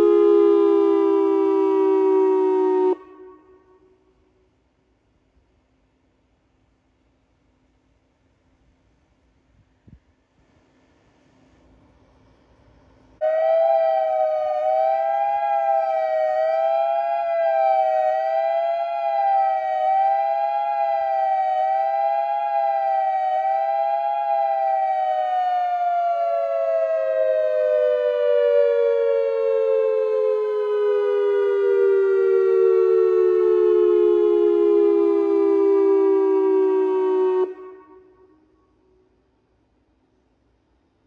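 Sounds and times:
dual-tone warning siren wavering: 0.0 - 4.1, 13.2 - 39.1.

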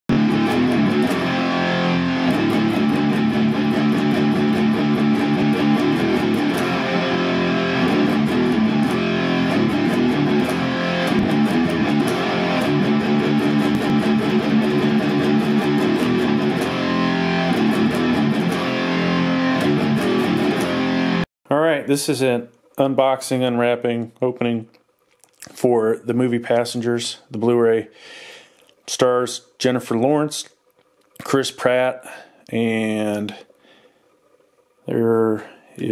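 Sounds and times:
electric guitar music: 0.1 - 21.3.

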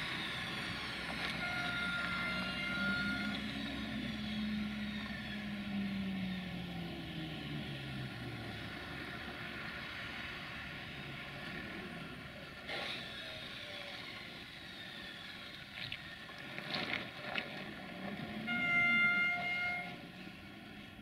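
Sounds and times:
diesel locomotive engine running: 0.0 - 16.6, 17.2 - 21.0
locomotive horn chord: 1.3 - 3.5, 18.4 - 20.2.

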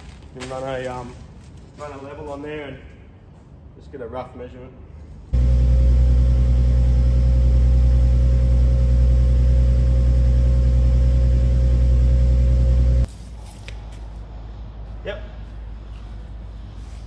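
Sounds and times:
engine-like mechanical hum: 5.2 - 17.0.

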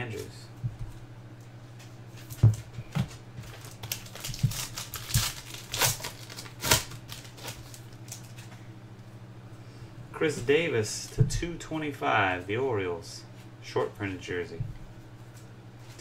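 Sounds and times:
plastic wrapper crinkling: 3.4 - 8.4.

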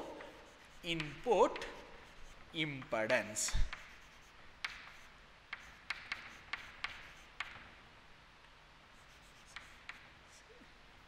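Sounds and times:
chalk scratching: 0.0 - 7.7, 8.9 - 10.5
chalk tapping on blackboard: 0.2 - 7.7, 9.0 - 10.1.

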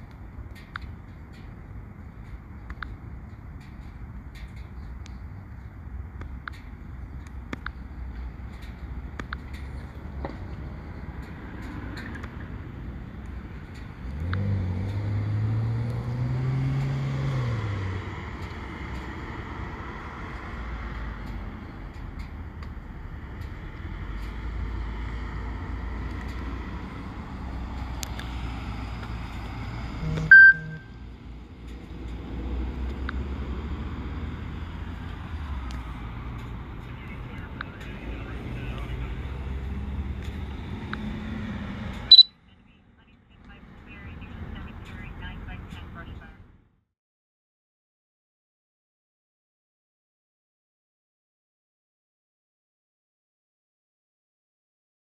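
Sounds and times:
vehicle engine rumbling: 0.0 - 46.8
engine rising and falling in pitch: 14.0 - 42.3
short high-pitched blip: 30.0 - 30.9, 42.1 - 42.3.

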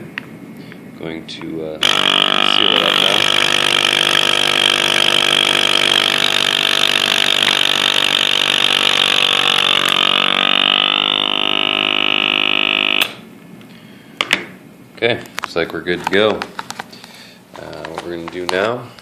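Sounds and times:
vacuum sealer pump motor: 1.8 - 13.3.

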